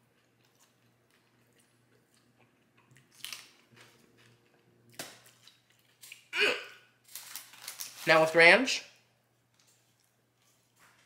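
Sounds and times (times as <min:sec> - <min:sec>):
person chewing crispy chicken: 0:00.0 - 0:06.3.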